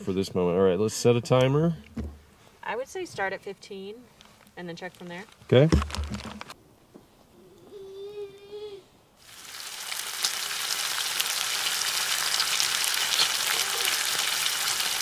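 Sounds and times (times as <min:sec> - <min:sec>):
bacon sizzling in a skillet: 0:09.2 - 0:15.0.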